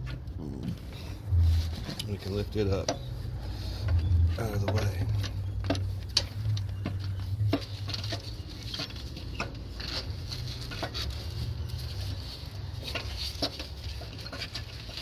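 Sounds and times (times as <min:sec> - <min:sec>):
steady low hum: 0:00.0 - 0:08.8
light knocks and clicks of parts: 0:01.8 - 0:11.2.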